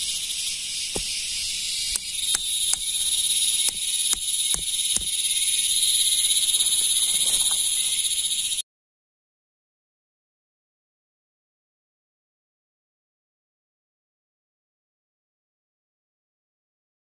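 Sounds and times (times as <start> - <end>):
high insect chorus: 0.0 - 8.6
hatchet knocking tent stake: 0.9 - 5.2.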